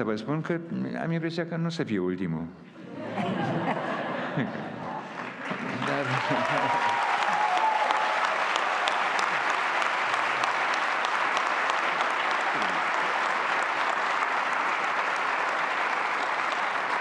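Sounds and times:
audience applauding: 0:04.7 - 0:17.0.

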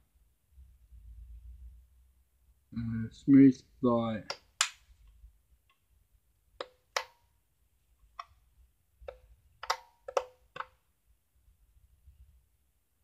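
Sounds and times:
plastic clicks and knocks: 0:09.0 - 0:10.8.

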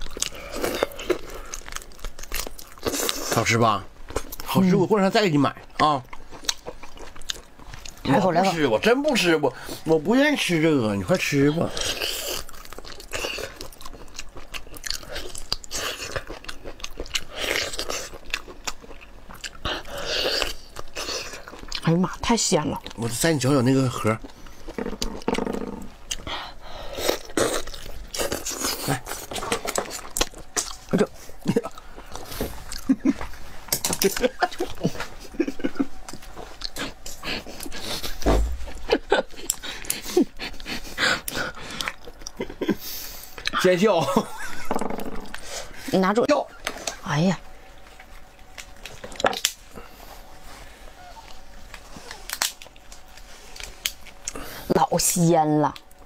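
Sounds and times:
person chewing: 0:00.0 - 0:04.6, 0:05.6 - 0:08.0, 0:11.6 - 0:21.9, 0:24.2 - 0:43.6, 0:51.1 - 0:54.6
wet slurping and chewing: 0:11.6 - 0:21.9, 0:24.0 - 0:32.9.

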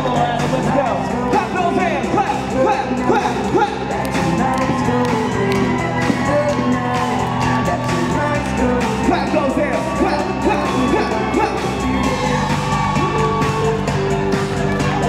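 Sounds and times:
upbeat music with singing: 0:00.0 - 0:15.0
crowd clapping along: 0:03.8 - 0:09.2, 0:10.3 - 0:15.0
crowd whooping: 0:04.0 - 0:15.0.

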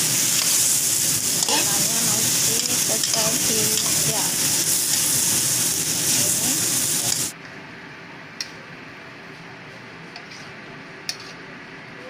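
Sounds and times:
vegetables sizzling in a wok: 0:00.0 - 0:07.4.

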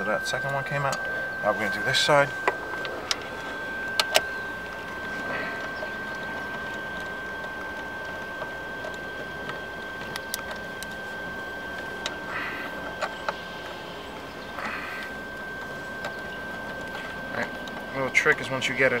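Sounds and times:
light metal and plastic clicks: 0:02.4 - 0:11.0.

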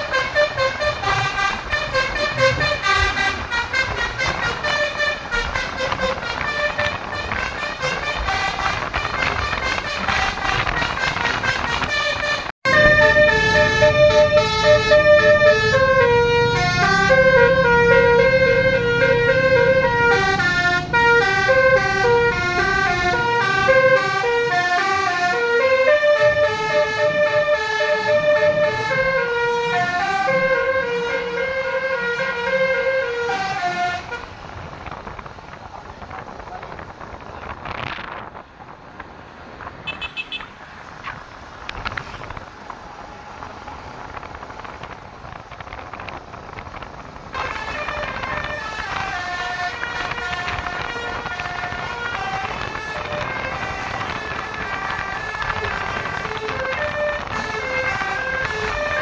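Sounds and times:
musical car horn playing tune: 0:00.0 - 0:34.3, 0:39.8 - 0:40.5.

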